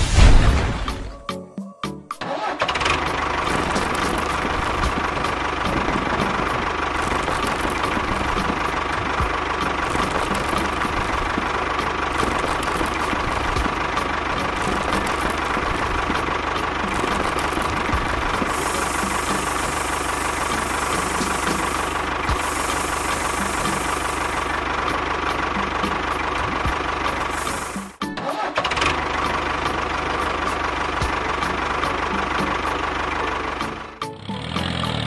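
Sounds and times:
small motor running with rattle: 2.7 - 28.0.

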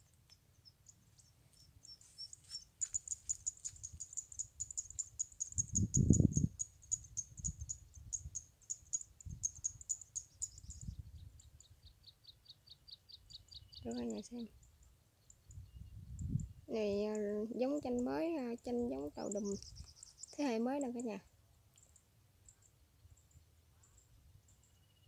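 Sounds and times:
lower-pitched chirping: 0.6 - 17.2, 18.9 - 21.2
high-pitched chirps: 1.6 - 11.0.

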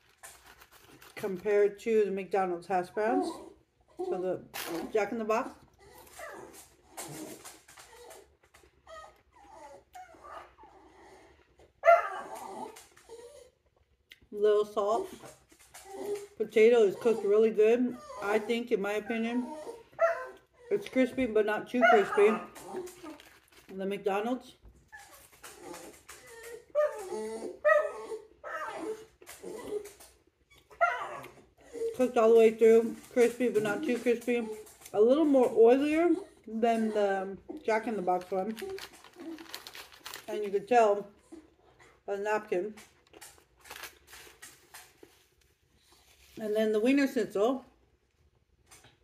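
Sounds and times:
crunchy food being chewed: 0.0 - 1.5, 21.9 - 23.8, 37.5 - 40.5, 42.8 - 46.1
dog whimpering: 3.0 - 4.5, 5.7 - 13.6, 14.9 - 23.2, 24.9 - 32.4, 33.0 - 39.6.

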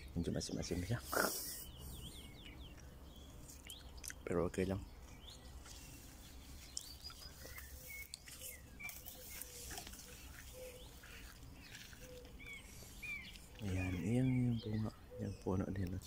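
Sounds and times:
small birds chirping: 0.0 - 16.0
rustling through grass: 5.0 - 14.8.

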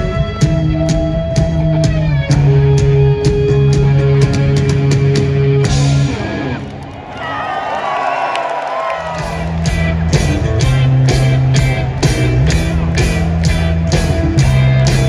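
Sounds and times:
live rock band playing: 0.0 - 6.8, 9.0 - 15.0
crowd cheering and whooping: 6.1 - 15.0.

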